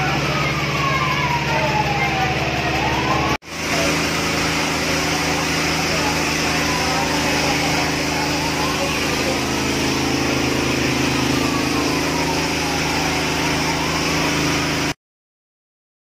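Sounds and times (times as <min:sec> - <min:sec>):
fire truck engine running: 0:00.0 - 0:15.0.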